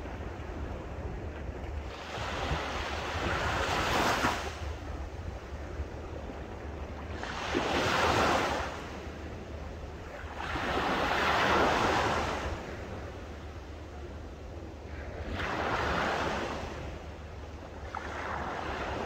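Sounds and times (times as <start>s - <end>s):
small waves breaking on sand: 1.8s - 9.1s, 10.0s - 13.4s, 14.9s - 17.1s, 17.8s - 19.0s
low steady rumble: 8.7s - 11.1s, 12.1s - 19.0s.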